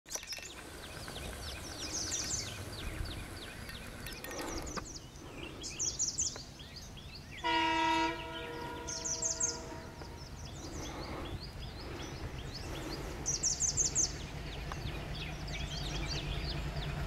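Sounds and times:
birds singing short falling chirps: 0:00.1 - 0:17.0
low steady rumble: 0:00.5 - 0:07.2, 0:08.0 - 0:17.0.

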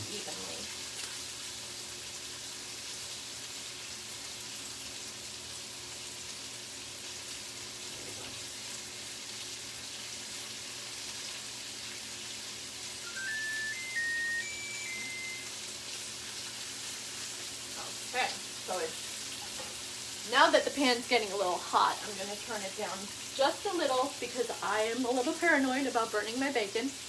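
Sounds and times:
bacon sizzling in a pan: 0:00.0 - 0:27.0
rising electronic beeps: 0:13.0 - 0:15.5.

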